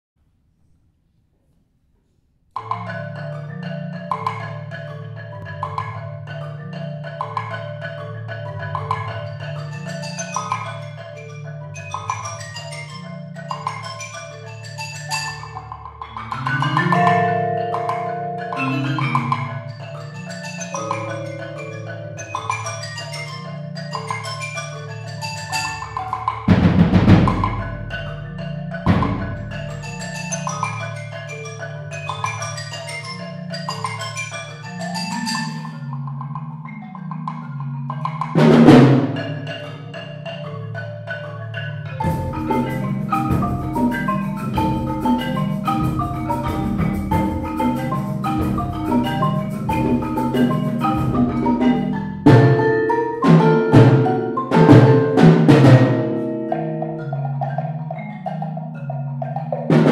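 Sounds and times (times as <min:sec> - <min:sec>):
marimbas playing: 0:02.6 - 0:59.9
deep percussion strikes: 0:26.5 - 0:28.2, 0:28.8 - 0:29.9, 0:38.3 - 0:39.5, 0:42.0 - 0:57.6.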